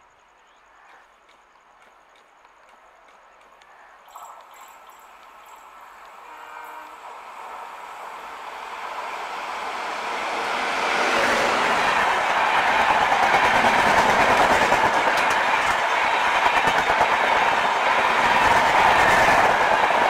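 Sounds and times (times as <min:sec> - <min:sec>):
clickety-clack of train coaches: 0:00.9 - 0:20.0
train passing at speed: 0:04.1 - 0:20.0.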